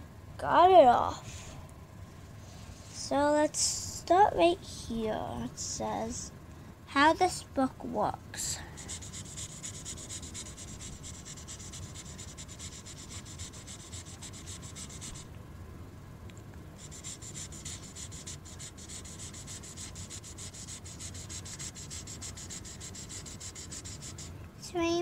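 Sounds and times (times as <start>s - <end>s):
marker scribbling on paper: 8.8s - 15.3s, 16.8s - 24.3s.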